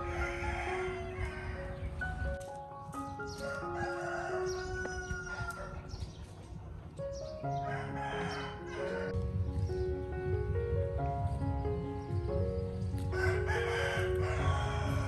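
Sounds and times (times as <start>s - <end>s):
rooster crowing: 0.0s - 1.8s, 3.3s - 6.0s, 7.6s - 9.2s, 13.1s - 15.0s
background music with held notes: 0.0s - 15.0s.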